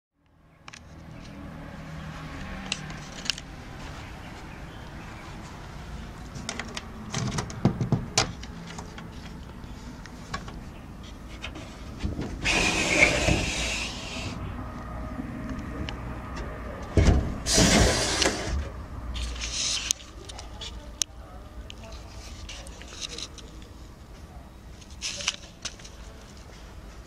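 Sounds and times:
metal latch clicks and knocks: 6.4 - 9.1
door scraping open: 11.4 - 14.4, 17.0 - 18.8.

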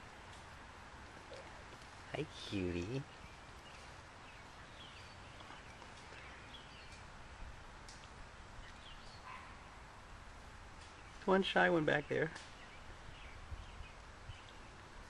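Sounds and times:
faint bird chirps: 1.2 - 7.1, 8.6 - 9.8.

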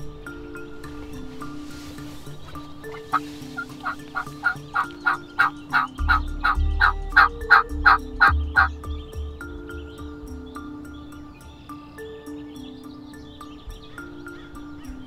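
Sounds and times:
soft background music with beat: 0.0 - 15.0
turkey yelping: 2.8 - 8.8.

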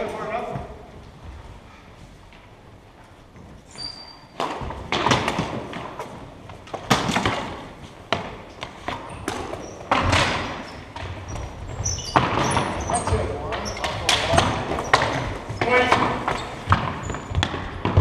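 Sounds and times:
hockey sticks and ball clacking: 3.3 - 18.0
sneaker squeaks: 3.4 - 18.0.

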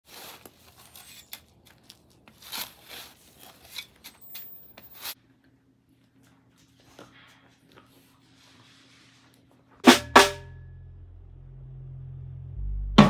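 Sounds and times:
rustling and scraping: 0.0 - 5.2, 6.1 - 9.8.

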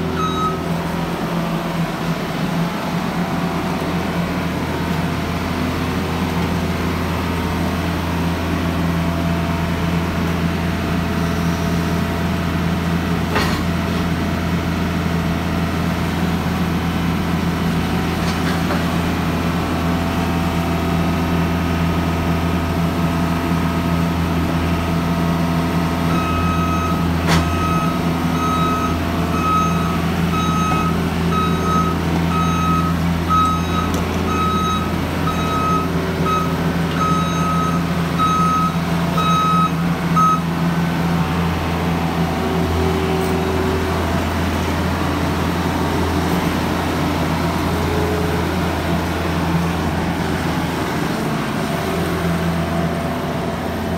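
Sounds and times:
loader engine running: 0.0 - 53.9
reversing alarm beeping: 0.1 - 1.1, 26.0 - 40.6.

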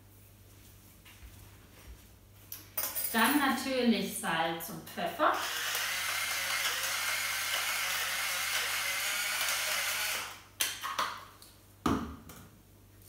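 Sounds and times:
electric mill whirring: 5.3 - 10.4.

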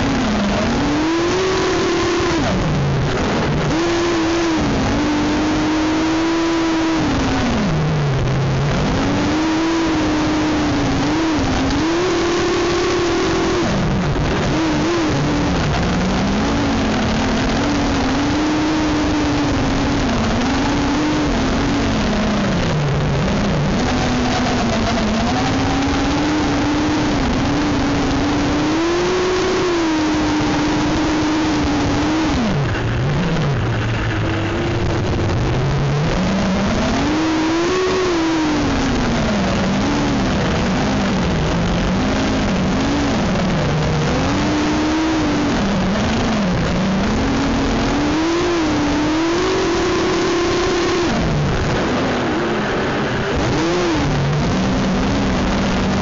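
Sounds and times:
drone motors whining: 0.0 - 56.0.

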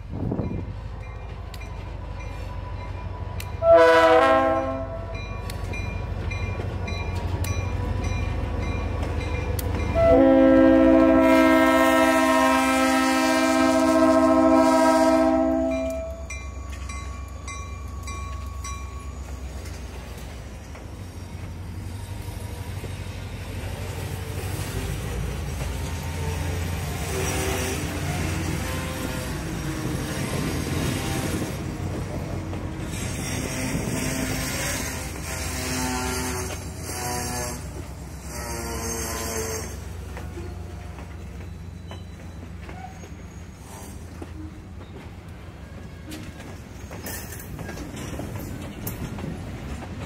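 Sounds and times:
rumble of passing train: 0.0 - 50.0
train wheel clicks: 0.5 - 3.6, 5.1 - 10.0, 15.8 - 28.4, 31.6 - 50.0
train air horn blasts: 3.6 - 5.3, 9.9 - 16.3, 27.0 - 29.5, 30.6 - 31.6, 32.9 - 40.2.

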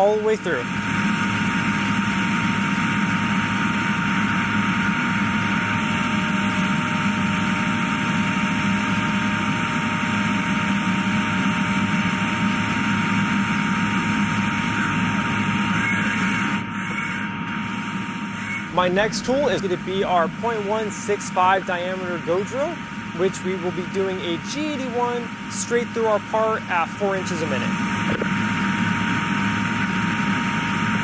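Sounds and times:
milling machine high cutting tone: 12.5 - 30.2
coolant spraying hiss: 18.8 - 25.5.

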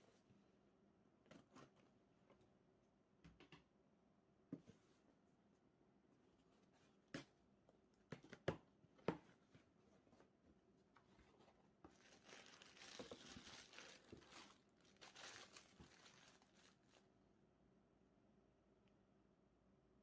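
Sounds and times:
bubble wrap crinkling: 11.8 - 17.1.

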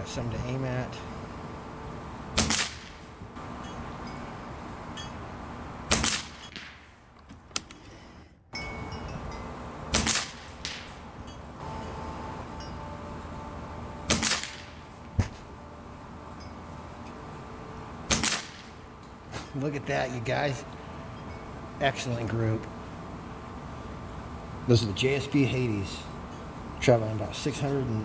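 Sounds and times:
air rifle shots: 2.3 - 3.1, 5.9 - 7.0, 9.9 - 11.0, 14.1 - 14.9, 18.1 - 18.8.

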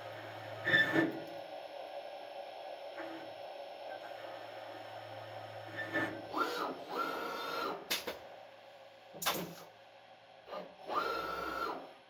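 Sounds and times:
lathe motor whine: 0.0 - 7.9, 10.9 - 11.9.

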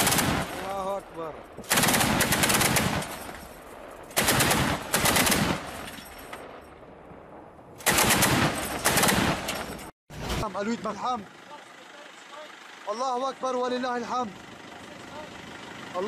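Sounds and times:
anti-aircraft gun bursts: 0.0 - 0.9, 1.6 - 6.0, 7.8 - 9.9.

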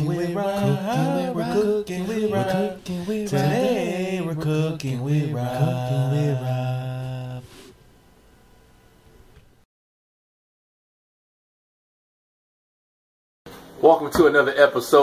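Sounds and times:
low voice singing chant-like: 0.0 - 7.6.

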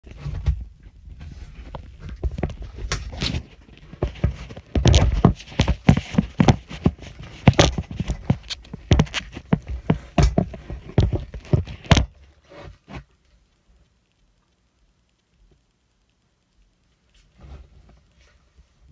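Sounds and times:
irregular knocks and clatter: 0.0 - 12.2.

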